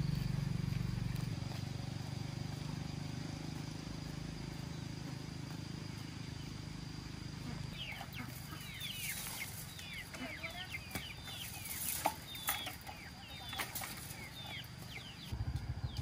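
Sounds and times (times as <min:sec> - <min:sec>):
low motor-like hum: 0:00.0 - 0:16.0
chickens clucking: 0:04.6 - 0:15.4.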